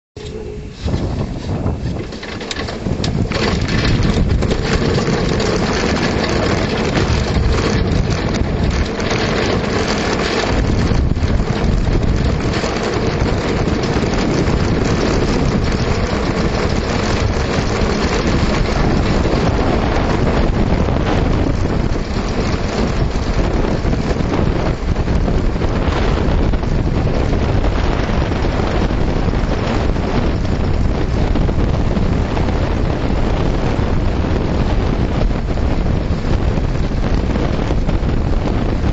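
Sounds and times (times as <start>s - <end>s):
wind buffeting microphone: 0.2s - 38.9s
wheels rolling on gravel: 0.8s - 38.9s
jolts and rattles: 1.0s - 20.6s.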